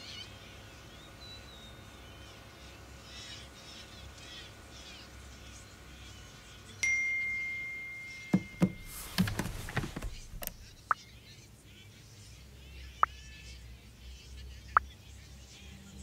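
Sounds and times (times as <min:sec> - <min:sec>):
phone notification ding: 0:06.8 - 0:09.0.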